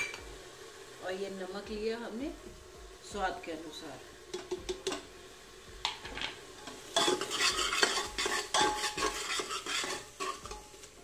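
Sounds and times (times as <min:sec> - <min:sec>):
spices sizzling in oil: 0:00.0 - 0:11.0
metal ladle scraping pot: 0:06.6 - 0:10.8.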